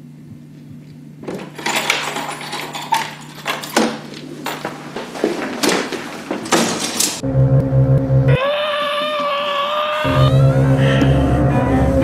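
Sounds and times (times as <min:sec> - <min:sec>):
crockery and cutlery clattering: 0:01.2 - 0:07.2.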